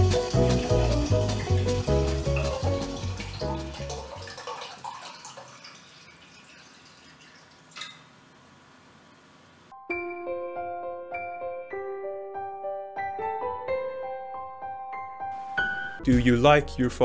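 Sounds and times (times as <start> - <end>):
background music with steady beat: 0.0 - 4.2, 15.2 - 17.0
liquid trickling into a mug: 0.2 - 8.2.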